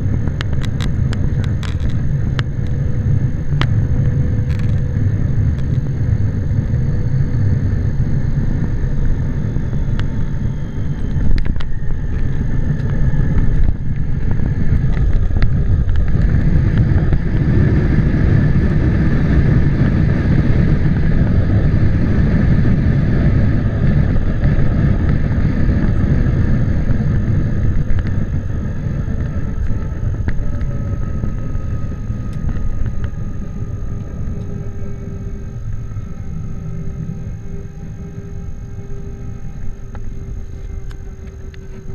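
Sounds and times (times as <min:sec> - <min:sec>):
faint steady whine: 0:00.0 - 0:41.9
jet engine and runway rumble: 0:00.0 - 0:41.9.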